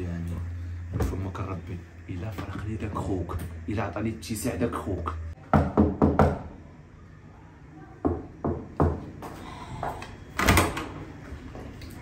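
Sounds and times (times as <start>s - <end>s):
knocking on a door: 5.5s - 6.6s, 8.0s - 9.2s.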